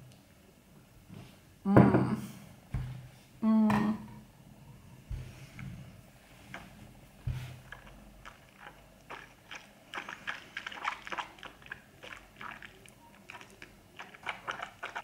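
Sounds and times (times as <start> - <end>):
mouth clicks and smacks: 7.6 - 15.0.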